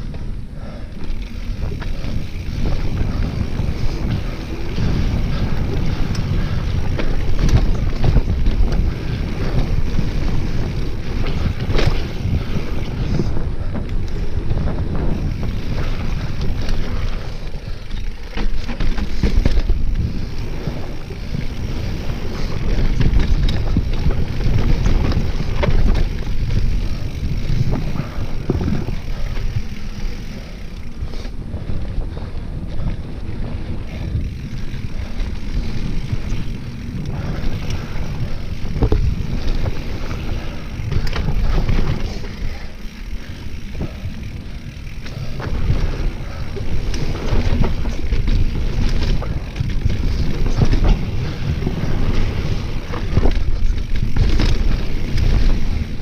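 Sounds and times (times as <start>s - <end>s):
bike rattling over bumps: 0.0s - 56.0s
bike tyres rolling on dirt: 0.0s - 56.0s
wind on microphone: 1.4s - 18.0s, 18.6s - 56.0s.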